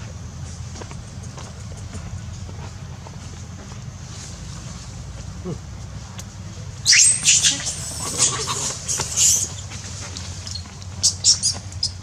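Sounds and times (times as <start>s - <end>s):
monkey squealing: 6.8s - 9.7s, 10.5s - 12.0s.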